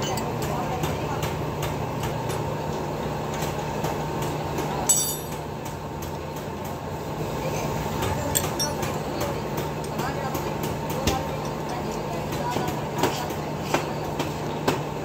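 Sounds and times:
steady mechanical rumble: 0.0s - 15.0s
wrenches clinking on metal: 4.8s - 5.4s, 8.3s - 9.1s.

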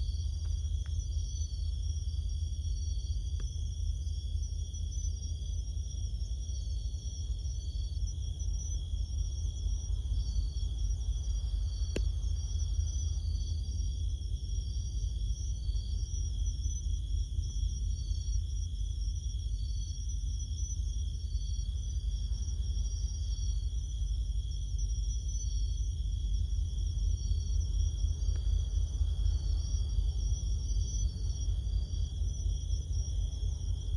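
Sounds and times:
insects trilling: 0.0s - 33.9s
low rumble: 26.4s - 33.9s.

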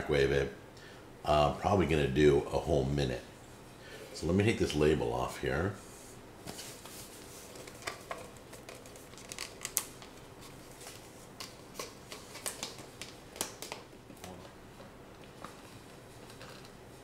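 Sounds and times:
paper and plastic crackling: 6.5s - 14.4s.

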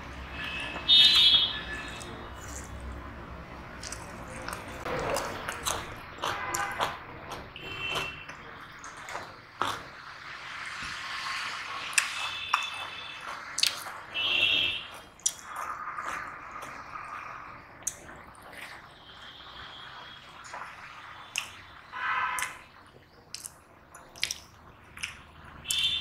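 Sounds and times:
fingers squishing wet rice: 23.3s - 25.9s.

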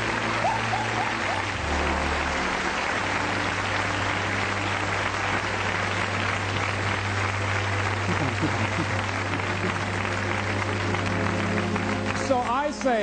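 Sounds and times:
audience applauding: 0.0s - 13.0s
music with low sustained notes: 0.0s - 13.0s.

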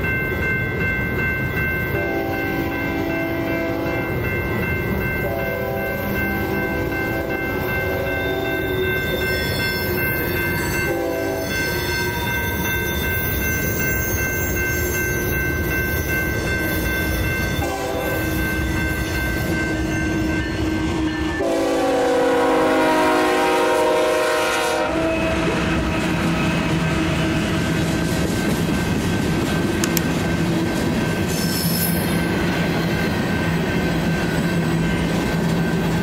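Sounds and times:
railroad crossing bells ringing: 0.0s - 36.0s
trains rumbling past: 0.0s - 36.0s
train horn blasts: 2.0s - 4.1s, 5.2s - 10.0s, 10.6s - 12.6s, 17.5s - 18.6s, 20.3s - 27.7s.

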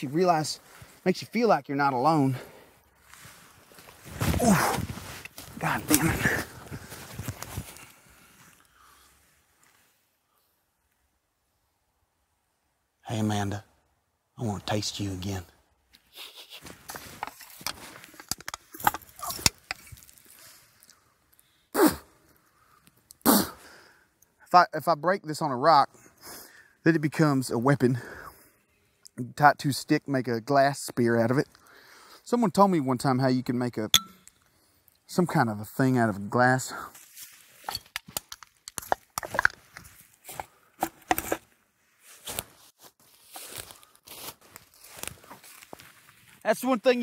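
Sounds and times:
man sighing or grunting: 4.3s - 4.9s, 5.6s - 6.9s
footsteps rustling in dry leaves: 42.0s - 46.4s.

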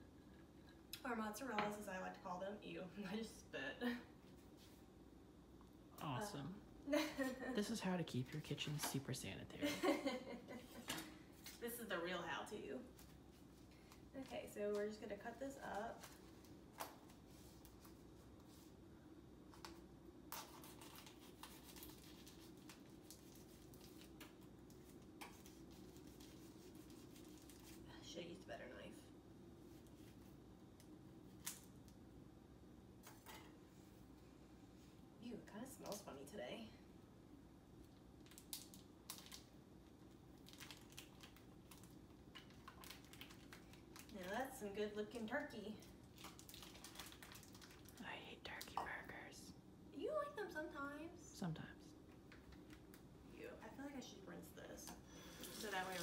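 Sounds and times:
low steady hum: 0.0s - 56.0s
plastic package crinkling: 38.2s - 39.6s, 40.3s - 44.4s, 45.8s - 48.0s.

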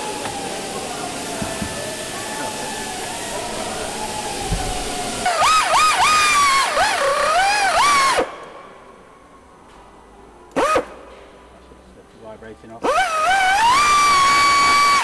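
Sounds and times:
pneumatic nibbler whining: 0.0s - 8.3s, 12.8s - 15.0s.

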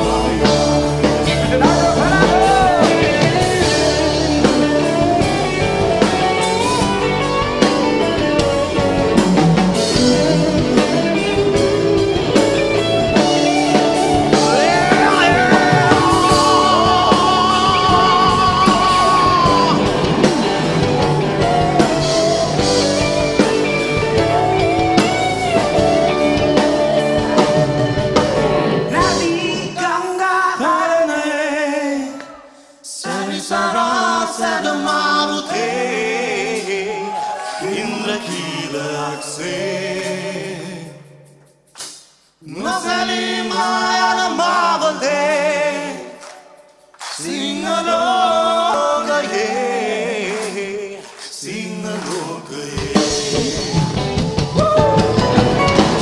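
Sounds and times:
men singing together: 0.0s - 6.9s, 14.2s - 25.2s, 28.9s - 41.2s, 42.4s - 46.4s, 47.0s - 54.4s
live band with electric guitar: 0.0s - 30.0s, 32.1s - 56.0s.

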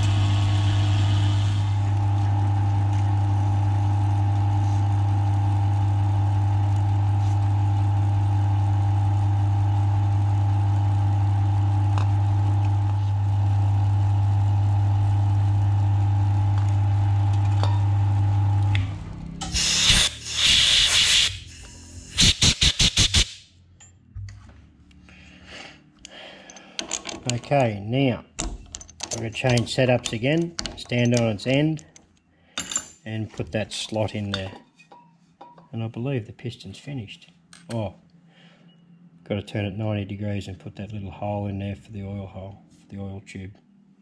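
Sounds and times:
milling machine humming: 0.0s - 20.4s.

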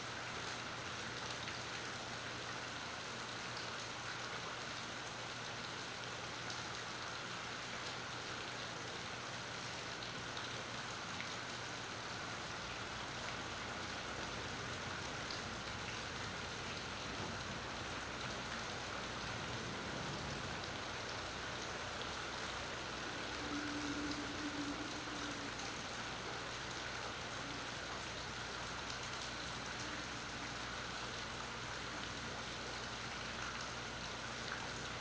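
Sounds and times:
steady rain on water: 0.0s - 35.0s.

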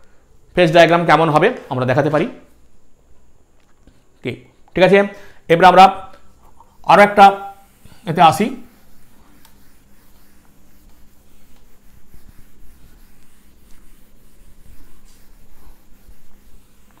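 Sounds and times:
pen scratching on paper: 7.2s - 17.0s.

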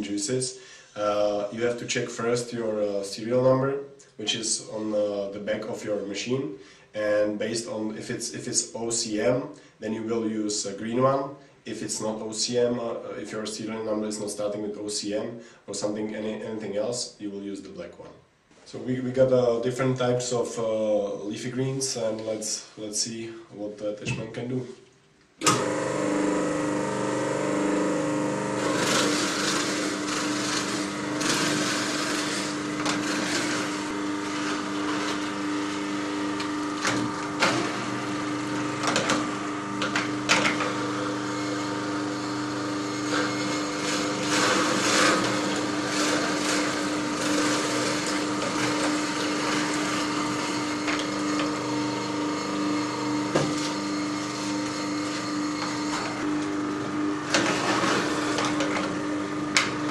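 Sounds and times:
juicer motor hum: 25.4s - 59.9s.

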